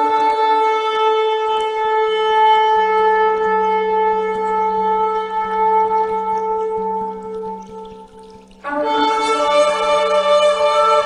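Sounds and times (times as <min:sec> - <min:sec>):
shofar blast: 0:08.6 - 0:11.0.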